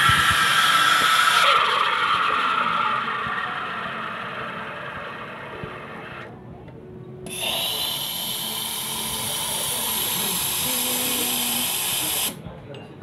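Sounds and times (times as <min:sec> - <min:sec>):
steam wand hissing: 0:00.0 - 0:05.0, 0:07.3 - 0:12.4.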